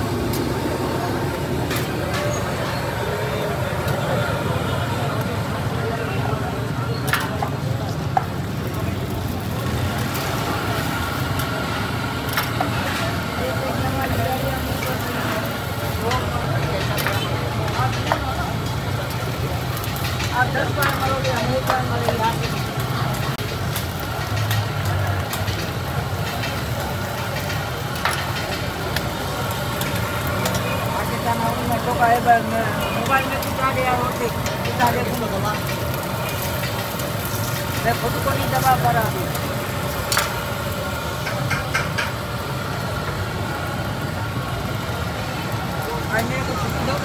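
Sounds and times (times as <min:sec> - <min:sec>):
eggs sizzling on a griddle: 0:00.0 - 0:47.0.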